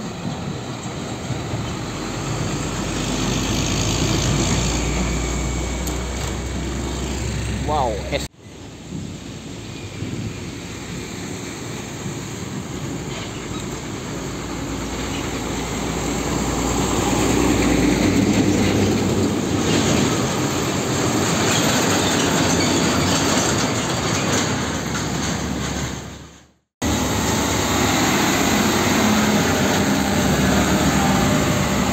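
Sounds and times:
heavy trucks driving past: 0.0 - 31.9.

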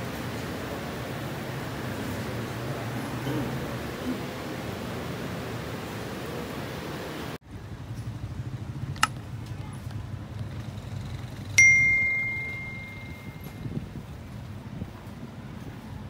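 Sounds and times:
low steady rumble: 7.5 - 15.4
bright bell ding: 11.6 - 13.6.

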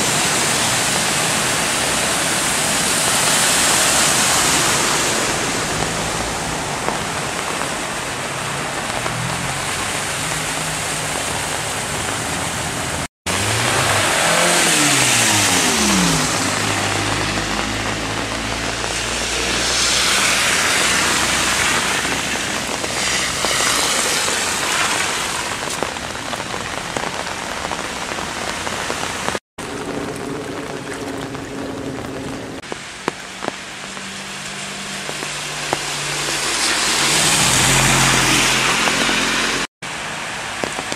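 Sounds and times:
cars driving through water: 0.0 - 40.9
floodwater rushing: 0.0 - 40.9
rain: 0.0 - 40.9.

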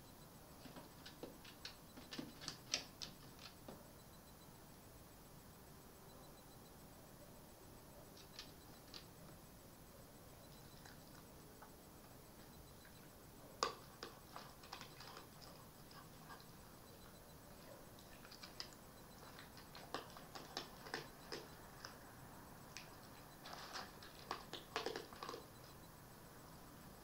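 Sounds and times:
fox crunching food: 0.6 - 3.8, 10.5 - 25.8.

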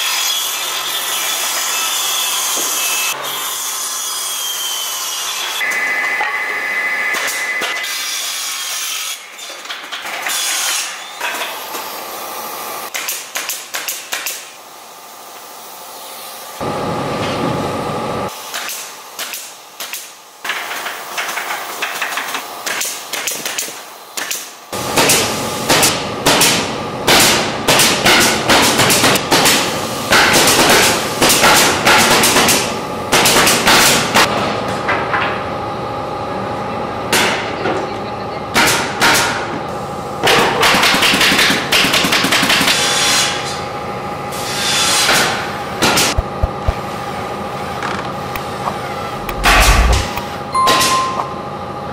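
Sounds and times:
nail gun firing into wood: 12.9 - 14.5
steady hum: 46.1 - 46.9, 49.0 - 51.9.

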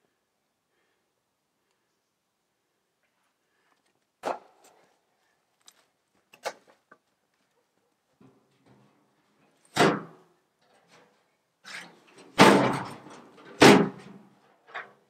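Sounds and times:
hollow thuds of metal barrel: 12.3 - 14.2.

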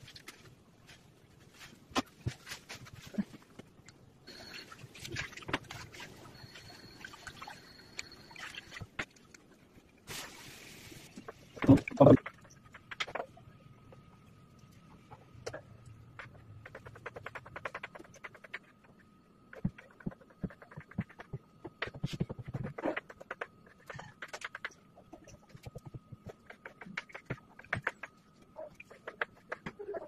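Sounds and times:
faint high whine: 3.1 - 12.6.

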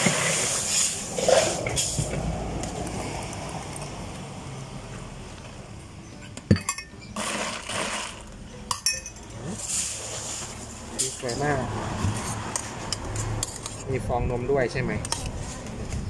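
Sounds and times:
ice clinking: 6.5 - 10.4
liquid poured over ice: 7.2 - 8.3.

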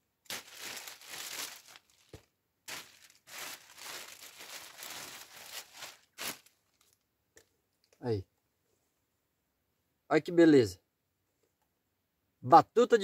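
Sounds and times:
plastic bag rustling and crinkling: 0.0 - 7.0.

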